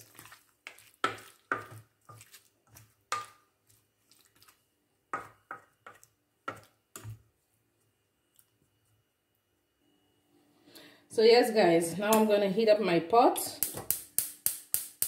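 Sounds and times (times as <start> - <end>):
squelching of marinated chicken: 0.0 - 4.7.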